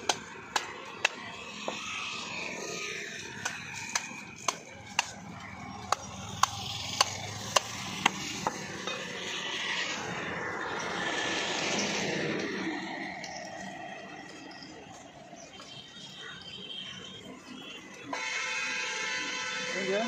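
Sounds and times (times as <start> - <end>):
broad rushing noise: 6.3 - 14.3.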